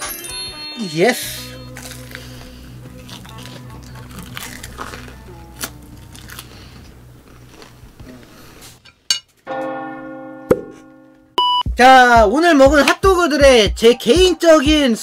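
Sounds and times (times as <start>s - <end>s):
bell-like chime: 0.0s - 1.8s
biting and chewing food: 1.6s - 8.8s.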